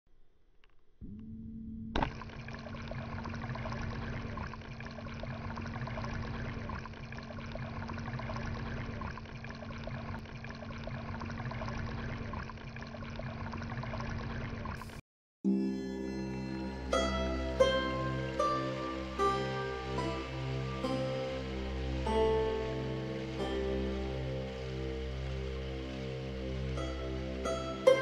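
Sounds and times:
water splashing into water: 2.0 - 14.8.

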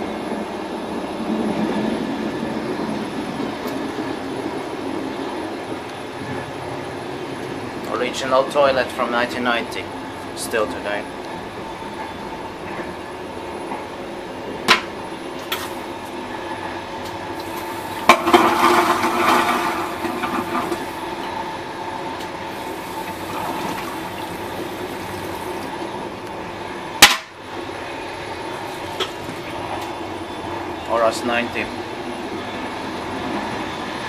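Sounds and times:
train humming: 9.0 - 34.0
train toilet flushing: 17.3 - 26.2, 28.4 - 30.1.

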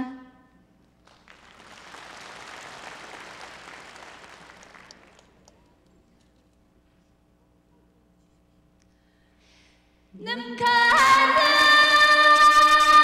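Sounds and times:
audience applause: 1.0 - 5.6.

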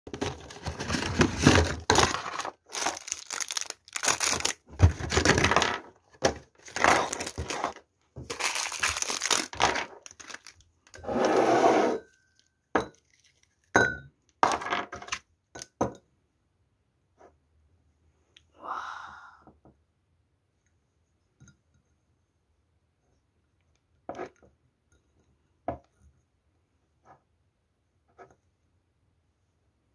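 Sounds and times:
plastic packaging crinkling: 0.1 - 5.7, 6.5 - 10.7, 12.4 - 13.7.

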